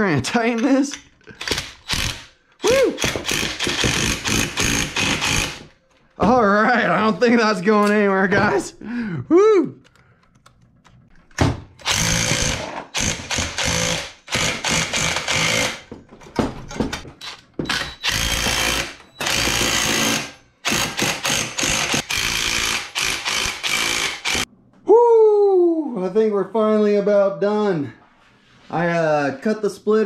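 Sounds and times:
impact driver hammering: 3.0 - 5.7, 11.8 - 15.9, 17.6 - 24.4.

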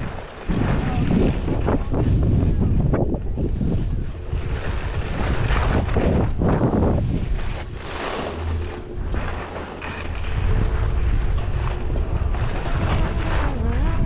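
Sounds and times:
wind buffeting microphone: 0.0 - 14.0
skis scraping on snow: 3.6 - 14.0.

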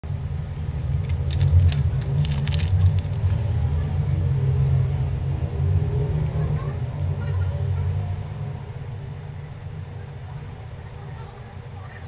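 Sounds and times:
steady low rumble: 0.0 - 11.8
rubber band and tape crackling: 0.9 - 3.4.

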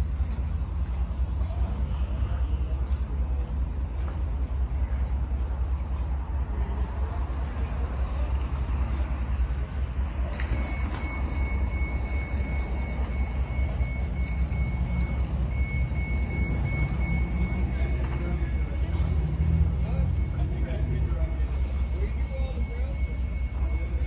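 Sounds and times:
heavy vehicles idling: 0.0 - 24.0
reversing alarm beeping: 7.6 - 24.0.

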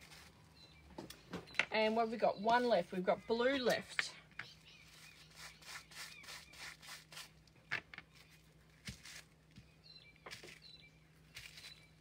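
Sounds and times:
bubble wrap dabbing and crinkling: 0.0 - 0.7, 4.8 - 12.0.

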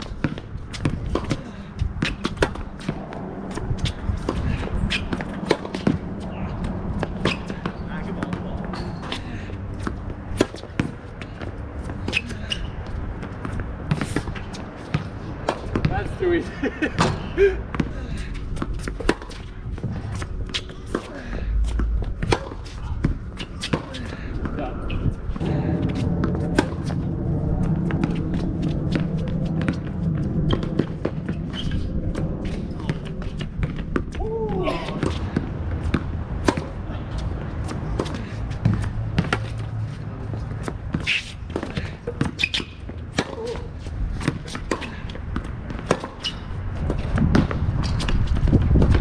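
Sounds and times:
tennis ball bounces and racket strokes: 0.0 - 49.0
tennis ball struck by racquets: 2.0 - 6.1, 22.2 - 24.0, 40.9 - 48.2.

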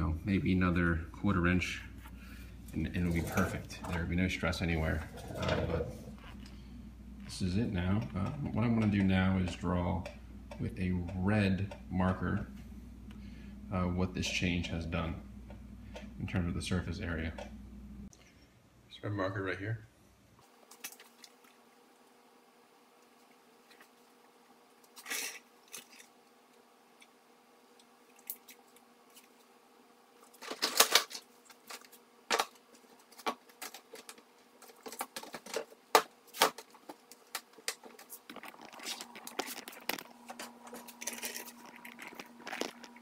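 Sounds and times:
faint steady hum: 0.0 - 43.0
small scratchy sounds: 30.2 - 43.0.

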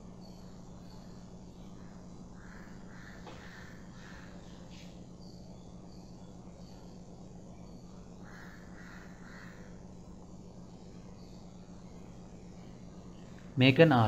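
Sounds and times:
low hum: 0.0 - 14.0
crow cawing: 1.8 - 4.6, 8.2 - 9.8.

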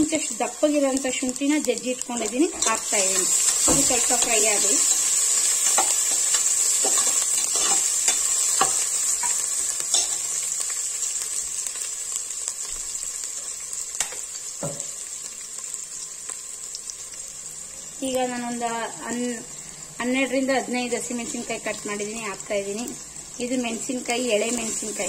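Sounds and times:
garlic and ginger sizzling in oil: 0.0 - 25.0
metal spatula scraping and tapping pot: 2.2 - 4.4, 5.6 - 10.2.

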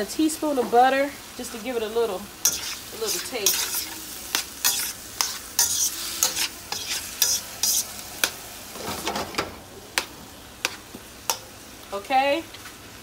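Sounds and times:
food sizzling: 0.0 - 13.0
spatula scraping a wok: 2.4 - 9.1, 10.0 - 11.6.

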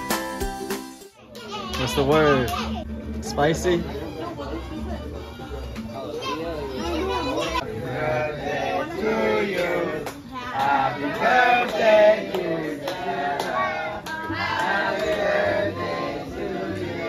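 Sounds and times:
people singing along: 7.6 - 17.0.

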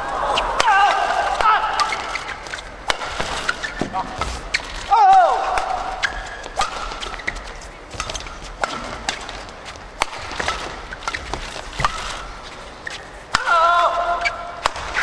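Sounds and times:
racket hitting shuttlecock: 0.6 - 15.0
shoes squeaking on court: 1.8 - 4.9, 5.8 - 13.3.

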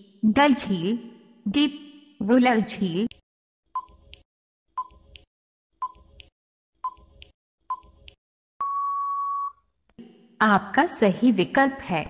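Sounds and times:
timer ticks with ping and click: 4.8 - 8.2.

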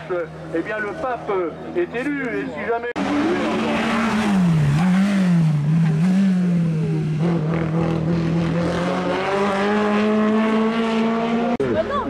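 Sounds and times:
race car engine revving high: 3.0 - 11.9.

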